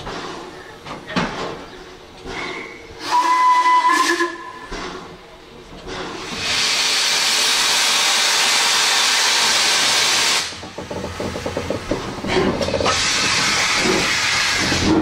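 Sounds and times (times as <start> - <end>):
steam locomotive chuffing: 0.0 - 15.0
steam hissing: 2.2 - 15.0.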